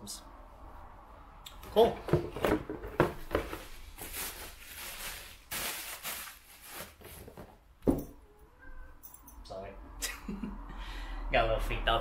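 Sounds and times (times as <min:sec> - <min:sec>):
packaging rustling: 0:03.2 - 0:07.6.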